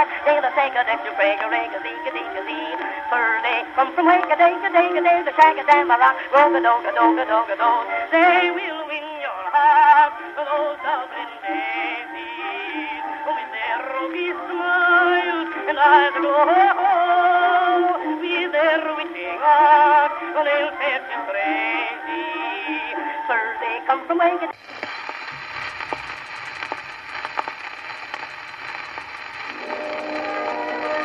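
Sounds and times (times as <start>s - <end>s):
tinny old-time music: 29.4s - 31.0s.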